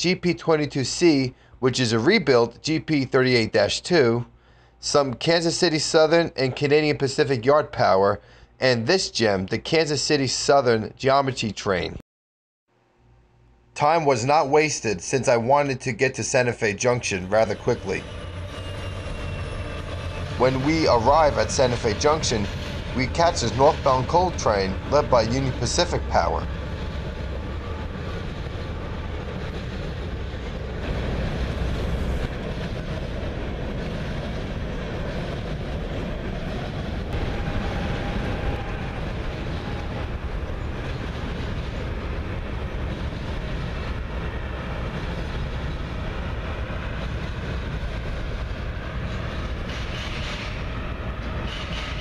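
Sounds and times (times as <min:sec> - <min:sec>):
train wheels on rails: 0:17.0 - 0:52.0.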